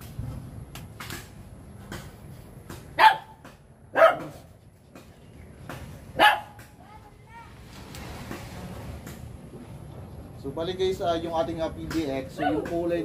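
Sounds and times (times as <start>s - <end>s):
dog barking: 3.0s - 4.4s, 6.2s - 6.6s.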